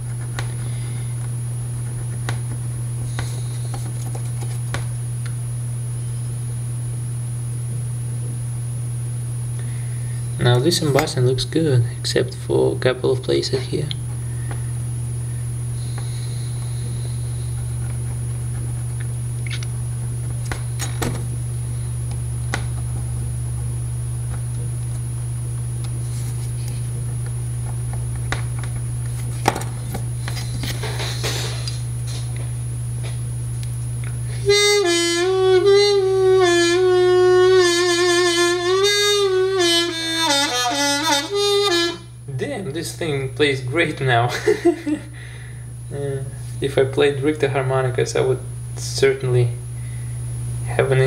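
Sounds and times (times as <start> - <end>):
low hum: 0.0 - 51.0
harmonica notes bending: 34.3 - 42.2.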